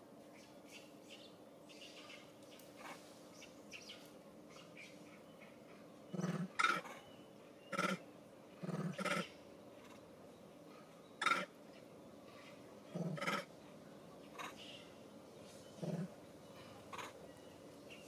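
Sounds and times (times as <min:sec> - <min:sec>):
faint bird chirping: 0:00.2 - 0:18.0
loud animal calls: 0:06.1 - 0:07.0, 0:07.7 - 0:08.0, 0:08.6 - 0:10.0, 0:11.2 - 0:11.6, 0:12.9 - 0:13.5, 0:16.8 - 0:17.2.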